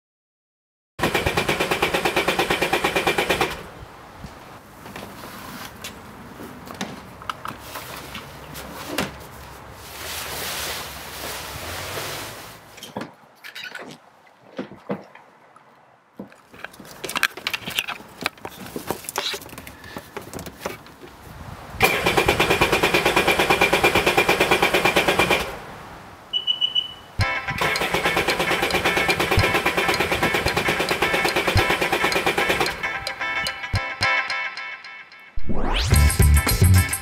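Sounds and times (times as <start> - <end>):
fabric cover dragged off: 9.7 - 12.7.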